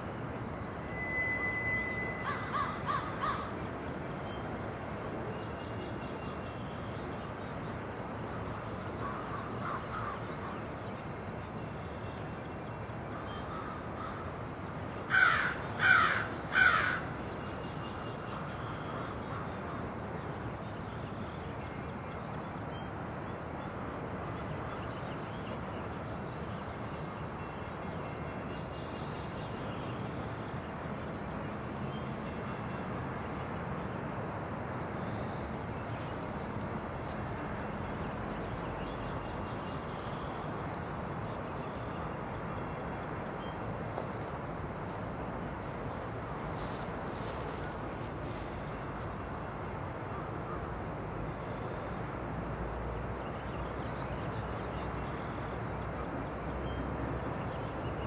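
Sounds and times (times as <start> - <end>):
crow cawing: 2.2 - 3.5, 15.1 - 17.1.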